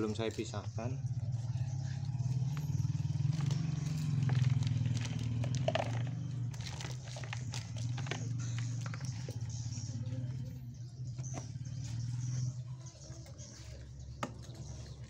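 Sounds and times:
small engine humming: 0.0 - 15.0
dry leaves and soil crackling: 2.5 - 9.5.

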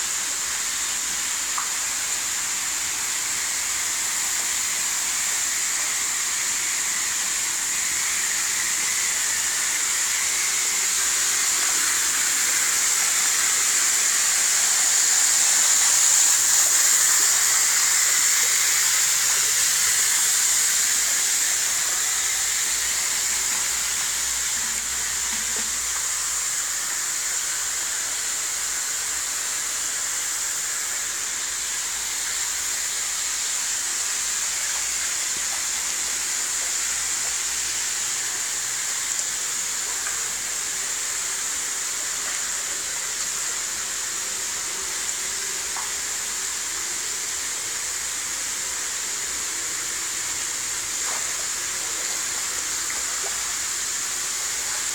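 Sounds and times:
water gushing and splashing: 1.2 - 28.3, 48.9 - 54.9.

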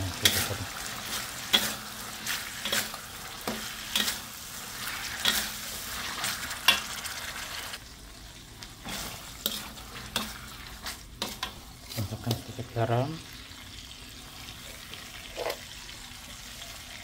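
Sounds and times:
sauce sizzling: 0.0 - 17.0
metal spatula scraping a wok: 0.1 - 7.8, 8.8 - 12.1.

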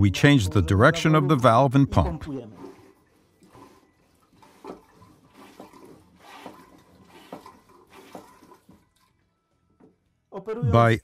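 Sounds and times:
toilet hand pump strokes: 1.0 - 9.2
water sloshing and gurgling: 1.1 - 9.6.

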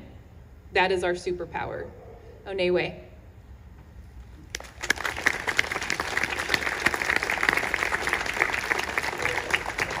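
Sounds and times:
audience applauding: 4.5 - 10.0.

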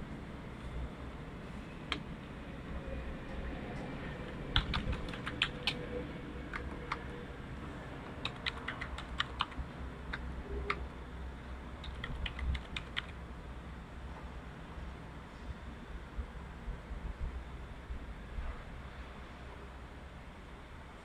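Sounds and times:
computer keyboard typing: 4.5 - 5.8, 8.0 - 10.8, 11.8 - 13.2.

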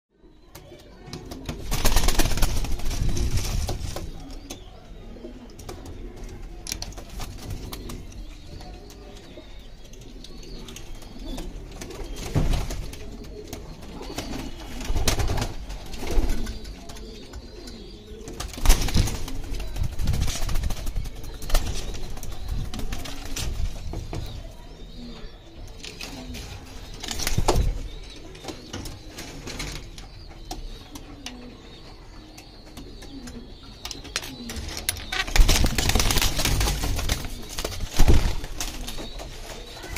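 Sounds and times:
pigeons cooing: 0.5 - 39.9.

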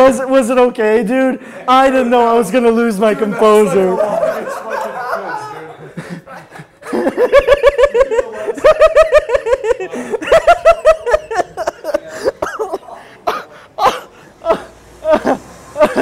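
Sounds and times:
person laughing hard: 3.7 - 12.8, 13.8 - 16.0.

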